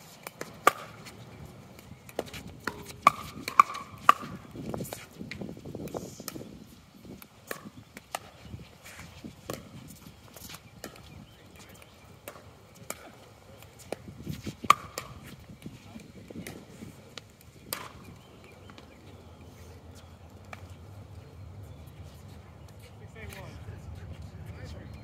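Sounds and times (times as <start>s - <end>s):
paddles striking pickleball: 0.1s - 6.5s, 7.2s - 19.2s, 20.3s - 20.8s.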